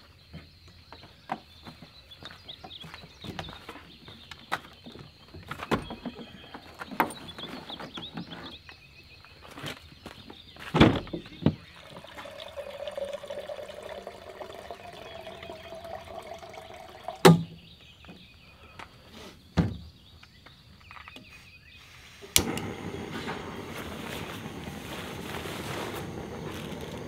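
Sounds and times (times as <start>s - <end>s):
water pouring into container: 11.6s - 17.4s.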